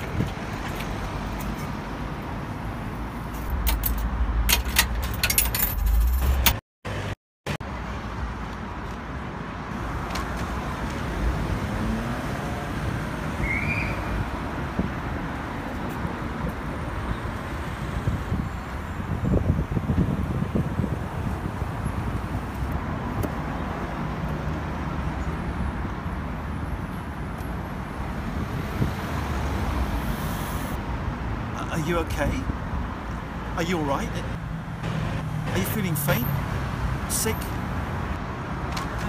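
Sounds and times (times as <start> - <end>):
road traffic noise: 0.0 - 39.0.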